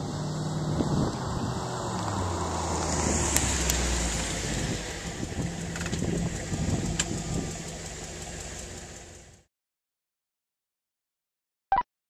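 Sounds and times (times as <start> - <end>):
car exhaust drone: 0.0 - 9.5.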